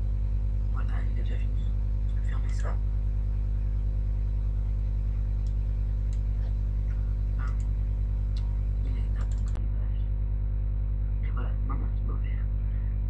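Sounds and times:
low electrical hum: 0:00.0 - 0:13.0
computer mouse clicks: 0:05.4 - 0:06.3, 0:09.2 - 0:09.6.

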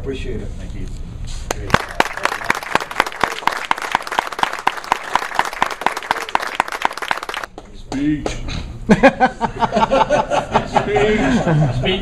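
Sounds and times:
people applauding: 0:01.5 - 0:07.5.

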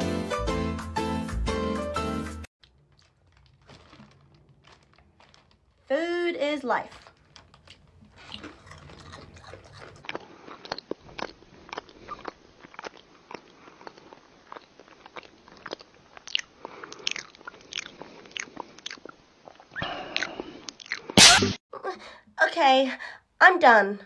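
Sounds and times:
person eating noisily: 0:02.6 - 0:05.9, 0:06.9 - 0:21.6.

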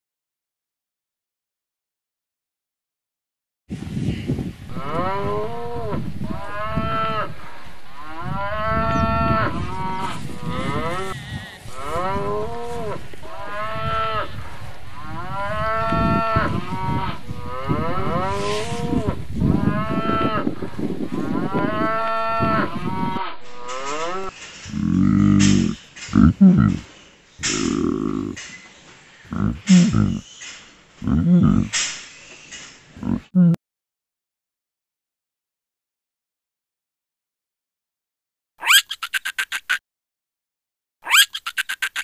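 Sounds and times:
low rumbling background: 0:04.7 - 0:23.9
cattle mooing: 0:04.7 - 0:26.8, 0:27.4 - 0:28.4, 0:29.3 - 0:30.2, 0:31.0 - 0:31.8.

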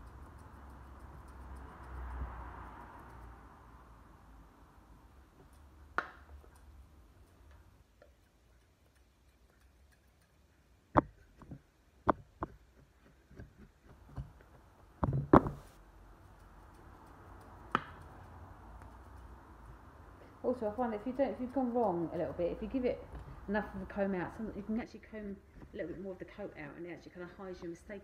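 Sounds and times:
scissors and comb clicking: 0:00.0 - 0:03.3, 0:16.2 - 0:19.4.

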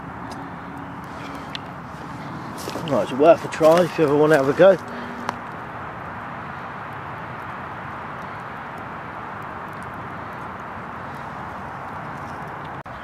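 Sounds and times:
campfire hissing: 0:00.0 - 0:12.8
faint fire crackles: 0:00.0 - 0:13.0.

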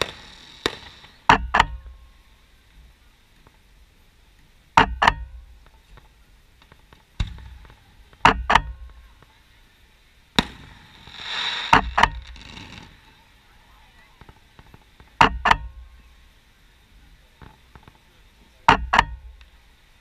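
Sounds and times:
fireworks bangs: 0:00.0 - 0:02.2, 0:06.8 - 0:09.4, 0:10.3 - 0:13.5
crackling hiss: 0:00.0 - 0:20.0.

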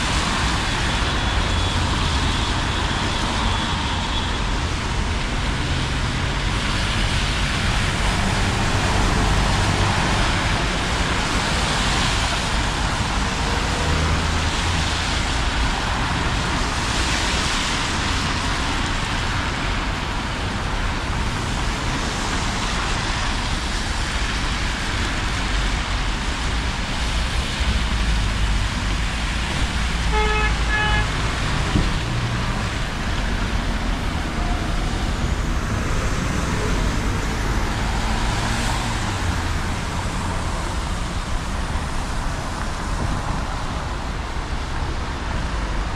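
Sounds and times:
engines rumbling: 0:00.0 - 0:45.9
tyres hissing on wet street: 0:00.0 - 0:45.9
vehicle horn toots: 0:30.0 - 0:31.4.

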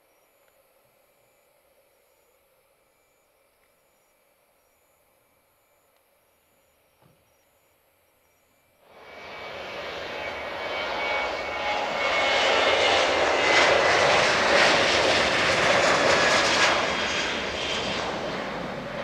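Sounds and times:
jet engines with high whine: 0:08.2 - 0:19.0.

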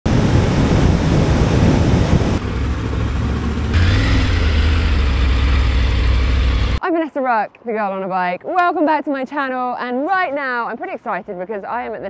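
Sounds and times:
wind noise: 0:00.1 - 0:02.6
motorcycle engine: 0:01.7 - 0:06.8.

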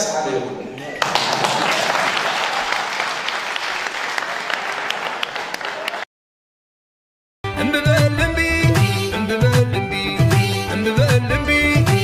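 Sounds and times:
audience applauding: 0:01.0 - 0:06.1.

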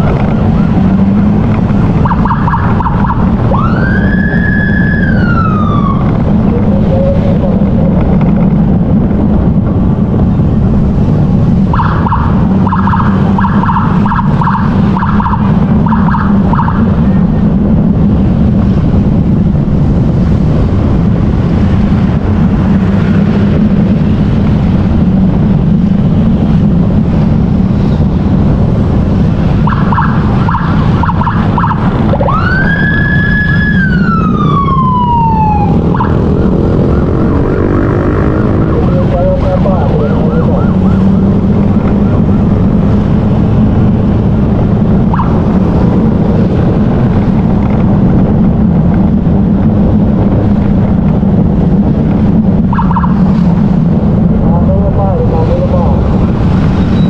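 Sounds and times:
emergency siren: 0:00.0 - 0:07.7, 0:11.6 - 0:17.5, 0:29.4 - 0:44.2, 0:44.8 - 0:46.0, 0:52.6 - 0:53.6
motorcycle engine drone: 0:00.0 - 0:57.0
wind: 0:00.0 - 0:57.0.

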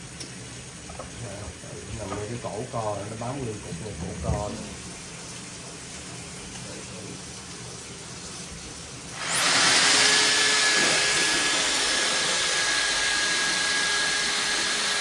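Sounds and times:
drain cleaning machine motor whine: 0:09.1 - 0:15.0.

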